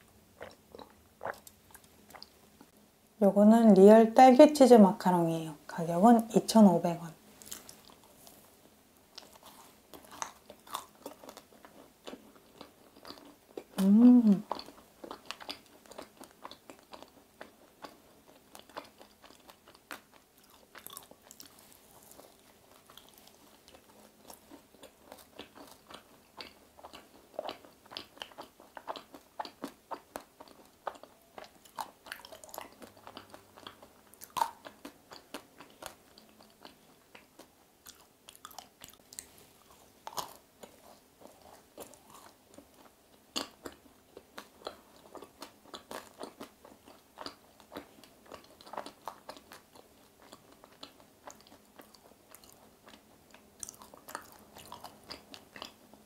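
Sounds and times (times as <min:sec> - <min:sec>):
crunchy chewing: 0:07.4 - 0:08.4, 0:09.1 - 0:56.0
person humming: 0:13.8 - 0:14.5.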